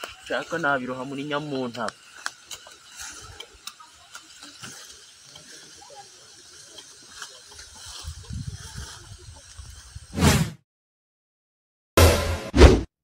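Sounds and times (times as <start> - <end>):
footsteps on leaf litter: 0.0 - 10.1.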